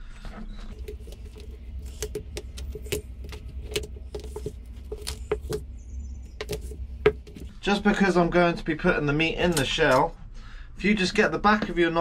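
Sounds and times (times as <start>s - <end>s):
crab shell cracking: 0.7s - 7.5s.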